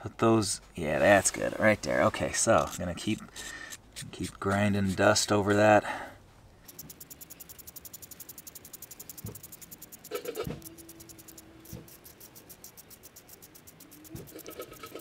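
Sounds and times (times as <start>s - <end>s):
lighter spark wheel ticking: 6.7s - 15.0s.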